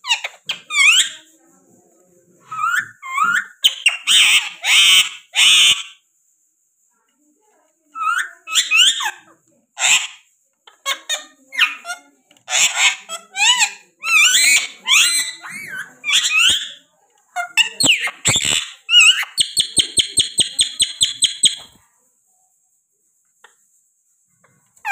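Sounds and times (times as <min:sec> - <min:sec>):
parakeets squawking and chirping: 0:00.0 - 0:01.2, 0:02.5 - 0:05.9, 0:08.0 - 0:09.2, 0:09.8 - 0:16.8, 0:17.4 - 0:21.8.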